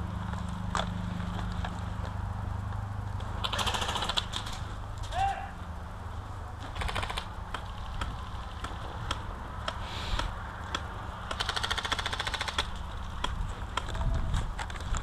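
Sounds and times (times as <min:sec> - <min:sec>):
airsoft guns firing: 0:03.4 - 0:04.5, 0:06.7 - 0:09.2, 0:10.7 - 0:13.4.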